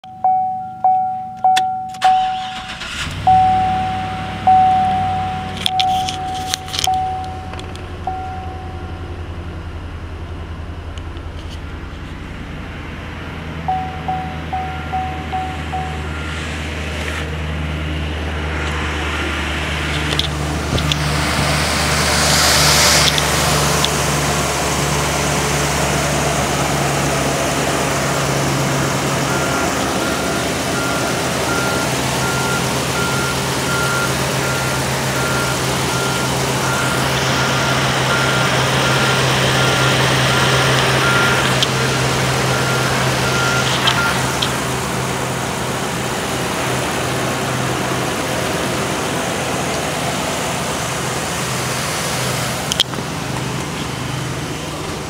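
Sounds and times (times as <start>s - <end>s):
dashboard warning chimes: 0.0s - 9.4s, 13.6s - 16.4s, 28.5s - 44.7s
truck engine idling: 0.0s - 55.0s.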